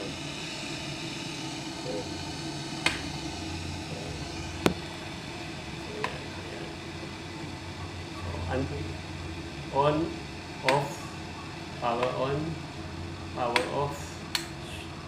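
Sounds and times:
low hum and hiss: 0:00.0 - 0:15.0
kettle switch clicks: 0:02.8 - 0:03.1, 0:10.6 - 0:10.9.

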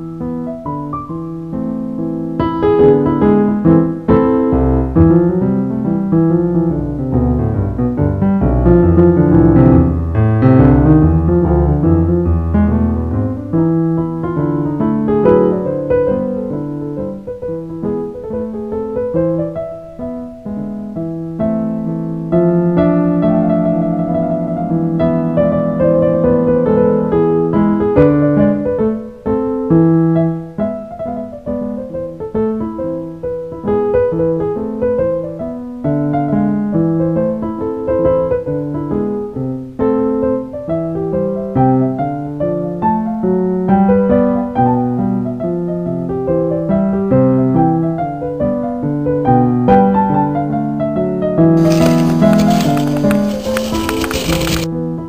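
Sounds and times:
piano music: 0:00.0 - 0:17.4.

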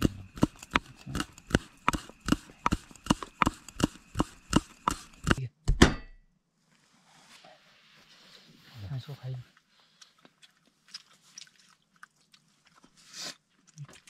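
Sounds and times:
knife chopping on cutting board: 0:00.0 - 0:06.1.

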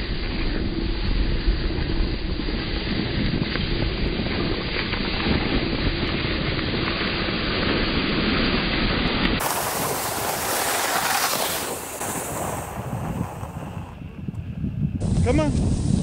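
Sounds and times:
wind on microphone: 0:00.0 - 0:16.0.

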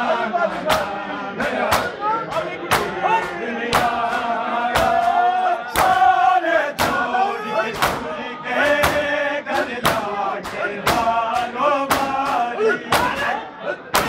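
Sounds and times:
crowd of men chanting: 0:00.0 - 0:14.0
chest beating slaps: 0:00.6 - 0:00.9, 0:01.6 - 0:06.1, 0:06.7 - 0:07.1, 0:07.7 - 0:14.0.

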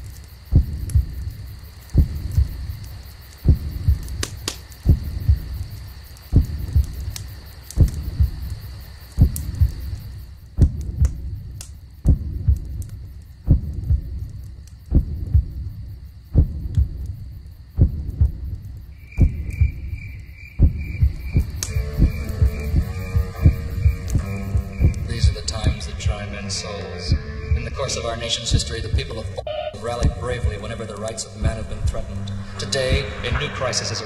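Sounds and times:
low double thump: 0:06.3 - 0:07.0, 0:20.6 - 0:25.8.

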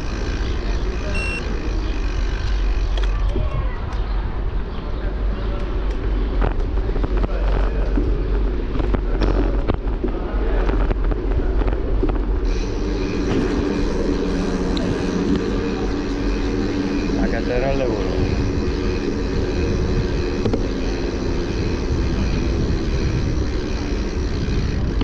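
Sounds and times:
wind buffeting microphone: 0:01.5 - 0:25.0
passing motor vehicle hum: 0:11.3 - 0:25.0.

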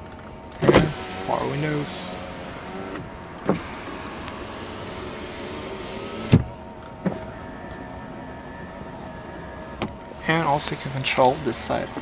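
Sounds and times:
window stopping with thunk: 0:00.6 - 0:01.0, 0:02.9 - 0:07.2
power window motor whirring: 0:00.6 - 0:10.5.

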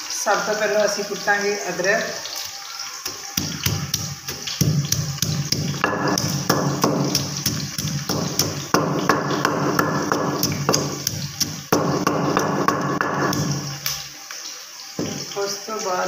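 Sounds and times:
pestle pounding in stone mortar: 0:03.1 - 0:13.7.

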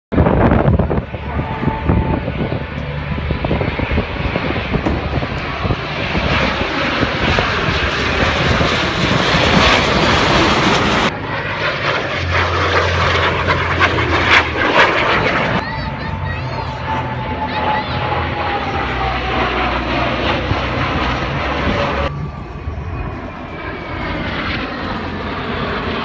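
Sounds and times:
jets flying overhead: 0:00.1 - 0:26.0
single jet passing: 0:00.2 - 0:26.0.

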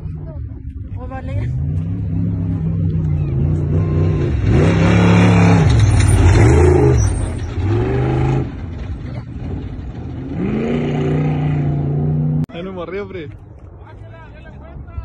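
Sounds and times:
truck engine revving: 0:01.4 - 0:12.5
tyres on gravel: 0:02.9 - 0:10.8.

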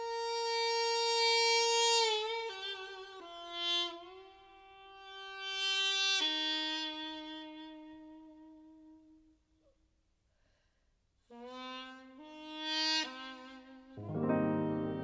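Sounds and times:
double-reed pipe melody: 0:11.3 - 0:15.0.

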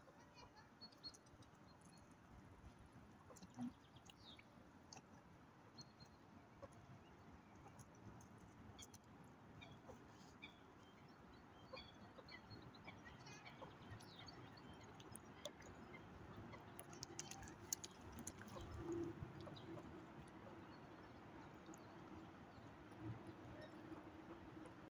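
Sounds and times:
faint bird chirps: 0:09.6 - 0:24.9.

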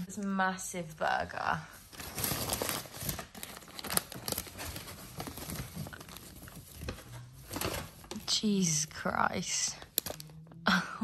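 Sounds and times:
paper wrapper crinkling: 0:01.8 - 0:10.4.

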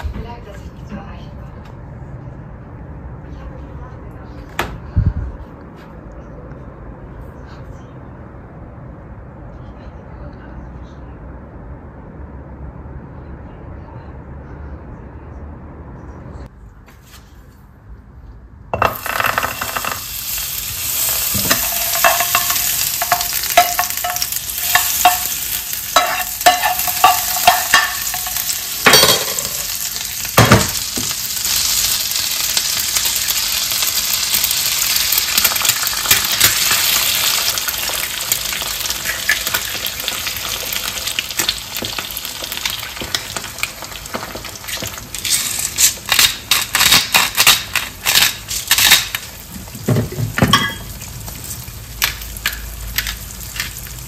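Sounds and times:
egg sizzling in hot oil: 0:18.8 - 0:47.2.

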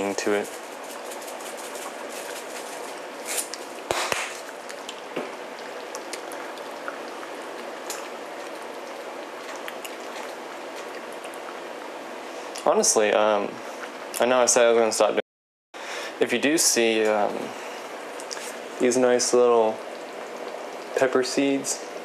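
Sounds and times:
pot bubbling at a simmer: 0:00.0 - 0:12.6, 0:17.2 - 0:22.0.

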